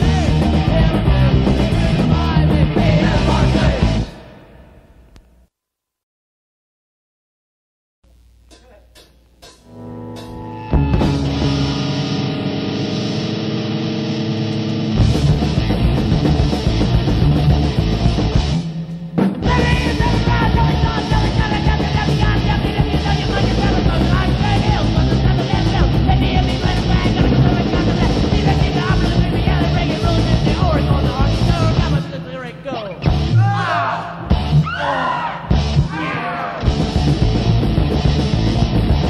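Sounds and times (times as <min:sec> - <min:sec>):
punk band playing: 0:00.0 - 0:04.2, 0:09.4 - 0:33.5, 0:34.2 - 0:34.7, 0:35.5 - 0:35.9, 0:36.6 - 0:39.0
shouted vocals: 0:19.4 - 0:24.8, 0:33.3 - 0:36.7.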